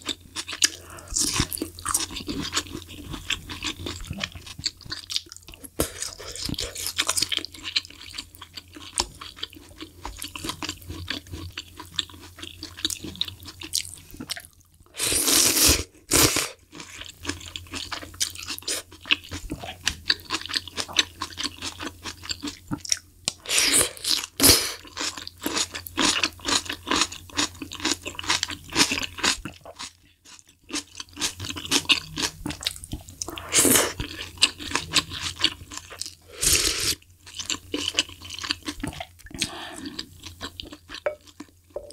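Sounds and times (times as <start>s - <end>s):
chewing and crunching noodles: 0.0s - 41.9s
loud slurp: 36.3s - 37.0s.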